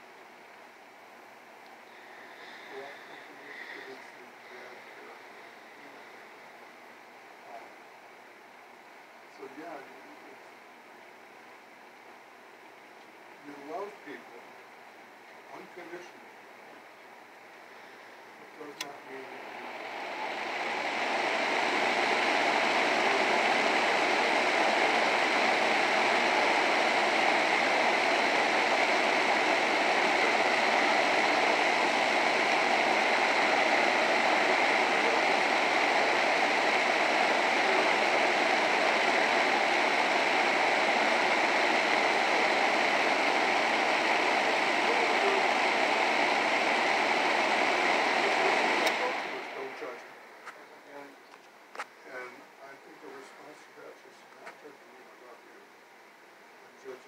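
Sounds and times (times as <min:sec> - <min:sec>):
box fan blowing air: 0:17.6 - 0:50.4.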